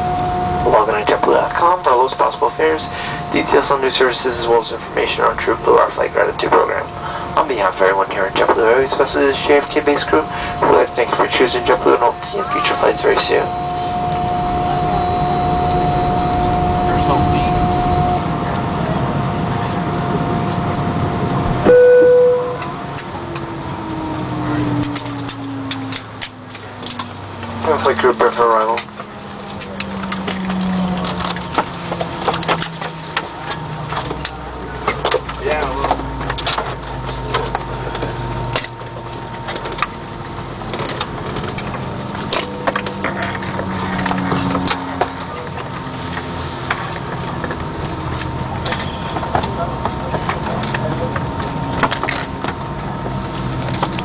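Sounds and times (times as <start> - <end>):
aircraft cabin rumble: 0.0 - 54.0
loud single tone: 12.4 - 18.3, 21.6 - 22.8
sharp clicks and rattles: 23.0 - 52.6.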